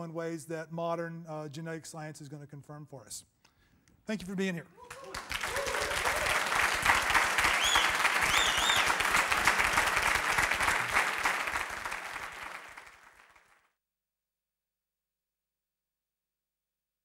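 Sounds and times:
audience applauding: 4.8s - 13.7s
high whistles: 7.4s - 9.1s.

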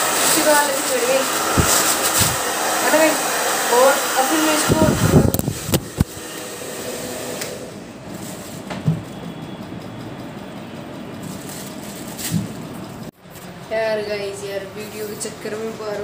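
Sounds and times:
hair dryer blowing: 0.0s - 8.7s.

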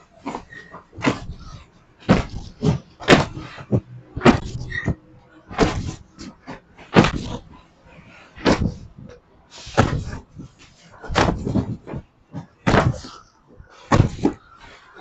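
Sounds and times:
heavy thumps of bales: 0.2s - 14.8s.

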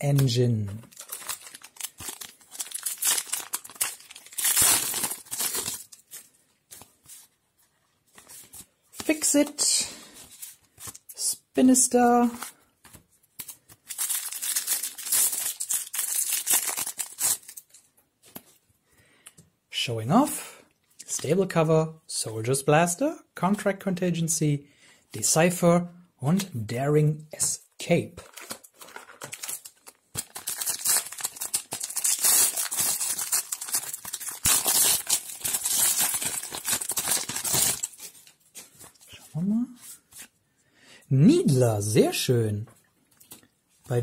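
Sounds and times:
foil wrapper crinkling: 0.2s - 6.2s, 13.4s - 17.8s, 28.2s - 39.0s.

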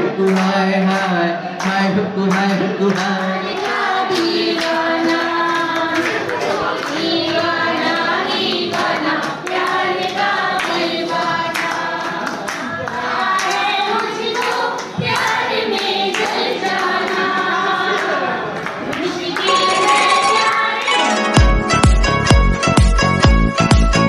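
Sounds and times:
people clapping in time: 0.1s - 21.5s
group of women singing along: 3.1s - 18.4s, 19.0s - 21.1s.

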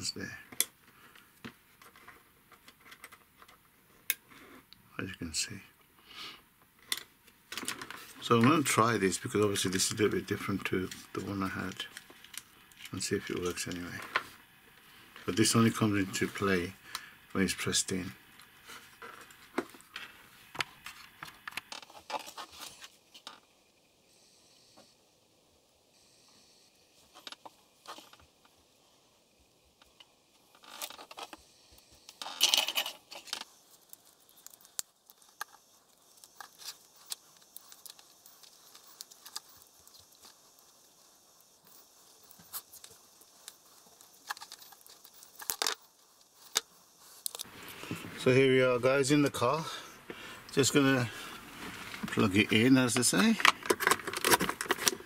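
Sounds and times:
tape crackling: 6.6s - 23.5s, 29.7s - 48.4s, 49.4s - 55.0s.

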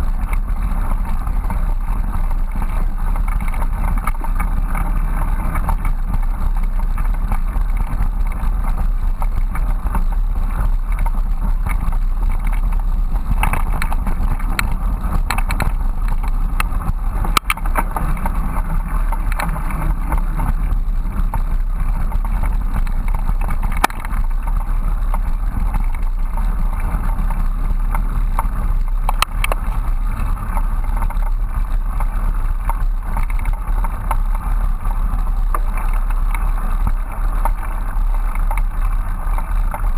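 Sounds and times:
bicycle rolling on dirt trail: 0.0s - 39.9s.

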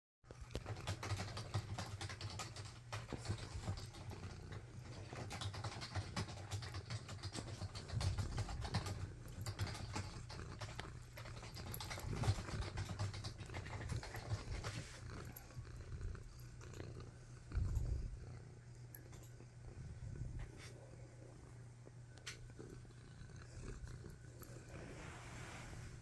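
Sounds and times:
cat purring: 0.3s - 26.0s
computer keyboard typing: 0.5s - 14.8s.

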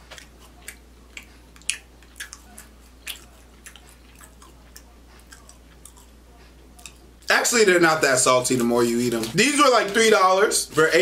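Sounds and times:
man chewing: 0.0s - 7.3s
faint low hum: 0.0s - 11.0s.

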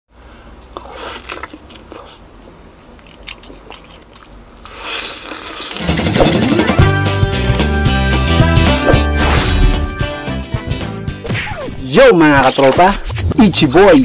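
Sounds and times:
chewing and crunching: 0.2s - 6.5s
loud intro music: 5.8s - 11.4s
swoosh: 8.7s - 10.0s.

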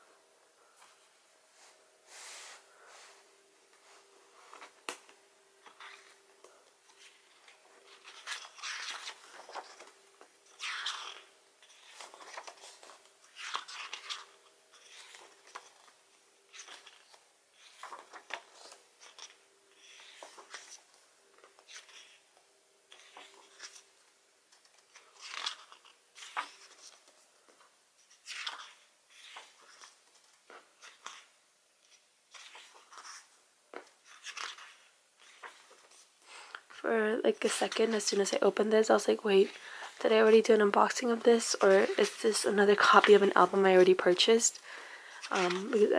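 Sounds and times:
album pages turning: 3.8s - 22.2s, 22.9s - 23.9s, 24.5s - 36.8s, 40.8s - 45.9s.

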